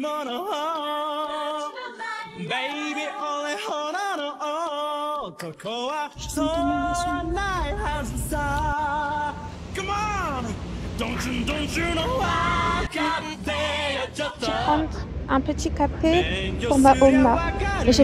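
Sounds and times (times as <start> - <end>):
low steady rumble: 6.2 - 18.0
woman singing: 14.3 - 18.0.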